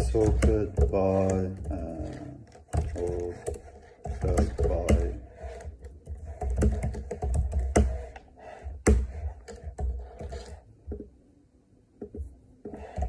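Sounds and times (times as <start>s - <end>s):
computer keyboard typing: 0.0s - 8.2s.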